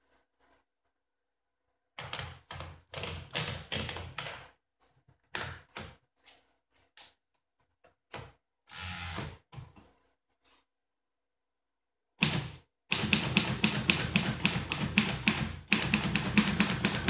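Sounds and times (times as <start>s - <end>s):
typewriter clicks and knocks: 12.2s - 17.0s.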